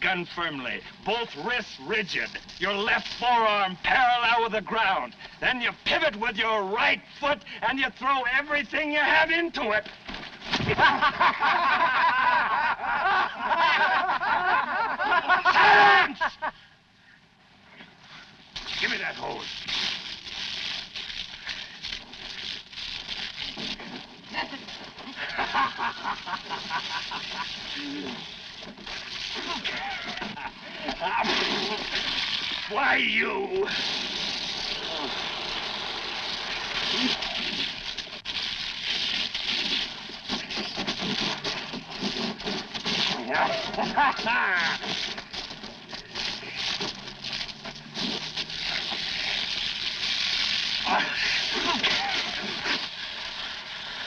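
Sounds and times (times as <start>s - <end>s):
water spraying from hose: 18.5s - 54.0s
high quavering vocal cry: 50.8s - 52.8s.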